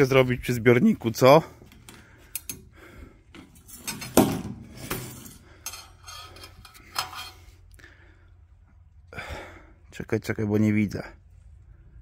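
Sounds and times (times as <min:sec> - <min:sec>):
metal rod scraping in fuel tank: 0:03.6 - 0:07.6.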